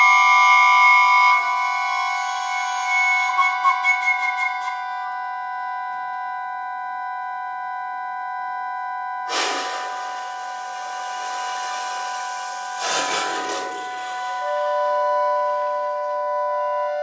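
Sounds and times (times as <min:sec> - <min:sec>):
breathy rush of air: 0:09.3 - 0:15.0.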